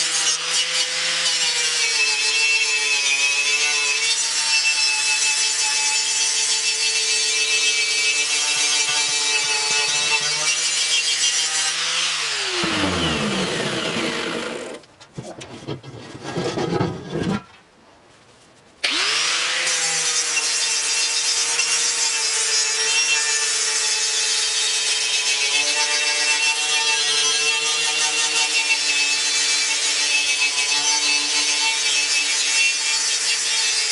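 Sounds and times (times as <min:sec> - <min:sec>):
grinder winding down: 0:11.8 - 0:14.8.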